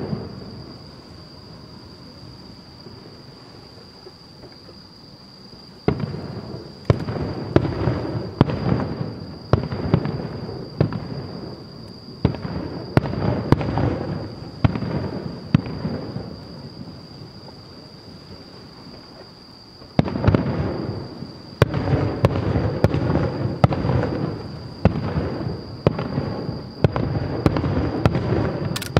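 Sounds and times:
fireworks bangs with rolling echo: 0.0 - 0.8, 5.8 - 17.0, 19.8 - 28.8.

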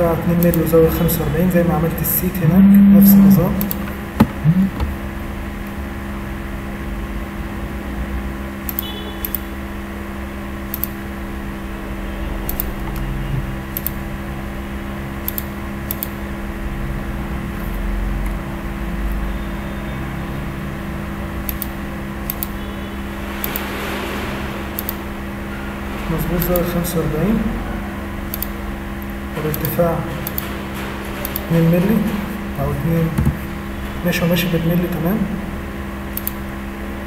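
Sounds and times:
machine hum: 0.0 - 37.0
computer mouse clicks: 10.7 - 11.0, 12.5 - 13.0, 13.8 - 14.0, 15.2 - 16.2, 21.5 - 22.6, 24.8 - 25.0, 28.3 - 28.6, 36.2 - 36.4.

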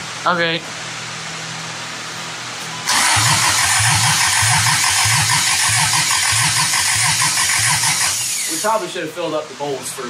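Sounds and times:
engine cranking by starter motor: 2.9 - 8.8.

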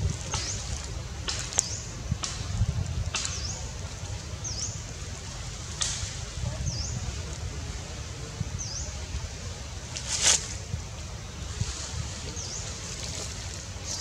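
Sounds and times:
sharp crackles: 0.0 - 7.5
low wind rumble on microphone: 0.0 - 14.0.

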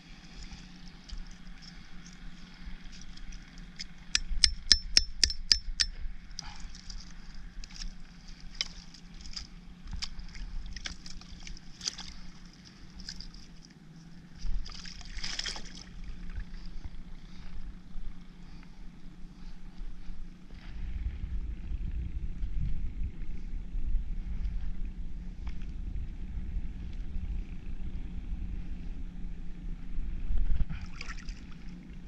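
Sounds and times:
hammer knocking on shells: 4.2 - 5.9.

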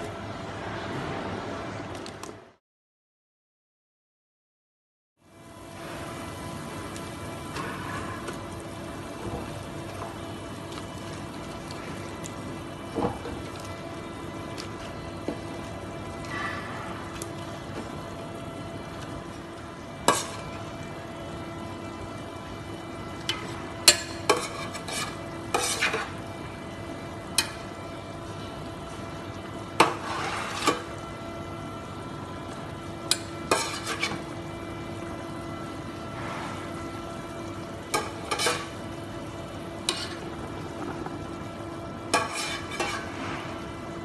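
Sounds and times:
metal ladle scraping pot: 20.1 - 20.5, 23.3 - 26.2, 29.8 - 30.9, 33.1 - 34.2, 37.9 - 38.8, 39.8 - 41.0, 42.1 - 43.5
simmering pot hiss: 36.6 - 44.0.

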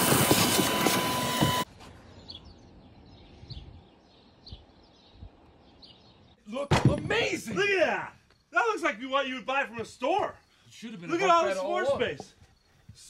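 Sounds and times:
debris rattling in hose: 0.0 - 1.6
shop vacuum running: 0.0 - 1.7
faint bird chirps: 9.9 - 13.0.

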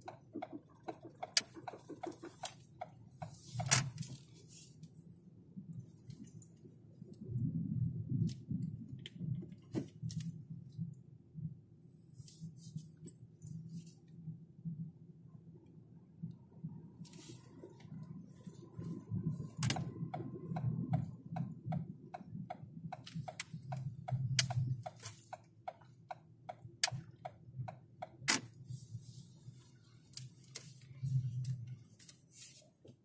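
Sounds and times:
turn signal ticking: 0.0 - 4.0, 19.4 - 28.3
engine and road rumble: 0.0 - 33.0.

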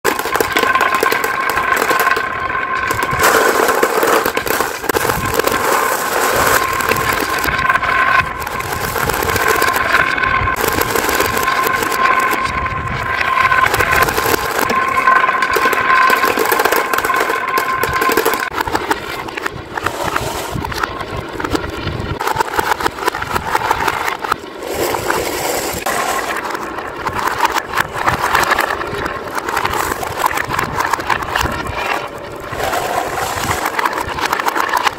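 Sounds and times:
marbles dropping into plastic truck: 0.0 - 12.6, 13.3 - 21.6, 22.2 - 34.9
marbles rattling through wooden grooves: 0.0 - 34.9
marbles swirling in wooden bowl: 0.0 - 34.9.

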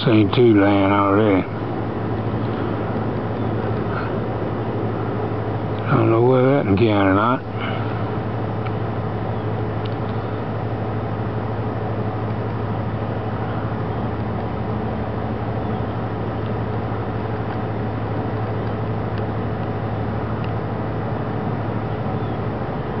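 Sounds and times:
distant jet engines rumbling: 0.0 - 23.0.

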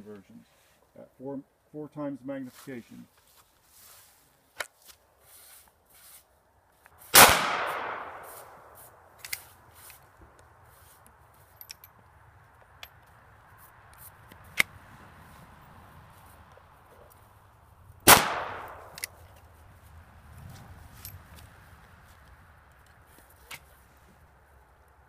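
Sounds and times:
rifle shot with echo: 7.1 - 8.6, 18.1 - 19.2
small metallic clicks: 9.2 - 10.0, 11.5 - 12.0, 18.6 - 19.4.

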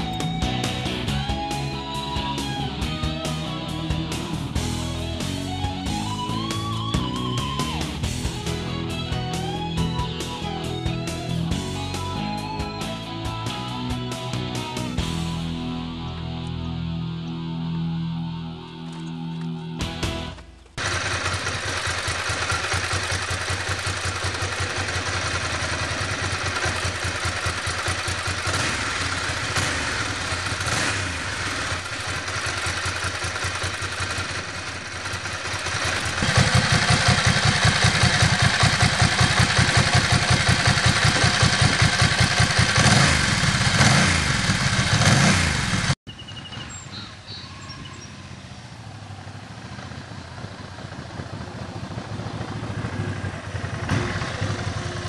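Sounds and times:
motorcycle engine idling and revving: 0.0 - 55.0
quiet outdoor ambience: 46.1 - 55.0.

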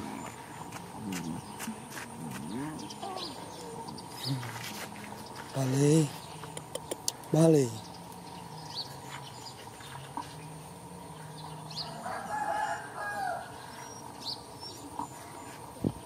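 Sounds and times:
rooster crowing: 11.7 - 13.8.

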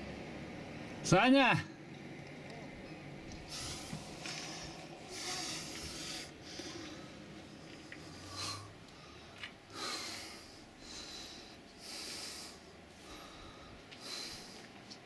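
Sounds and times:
person breathing close: 3.4 - 14.8.

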